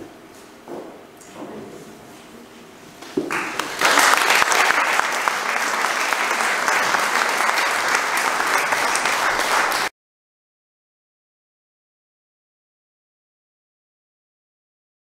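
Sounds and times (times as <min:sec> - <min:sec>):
audience applauding: 0:03.3 - 0:09.9.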